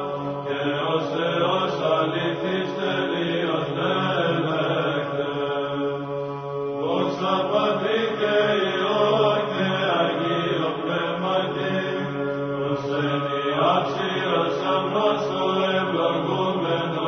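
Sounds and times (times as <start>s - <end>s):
men chanting a hymn: 0.0s - 6.0s, 6.8s - 17.0s
low vocal drone: 0.0s - 17.0s.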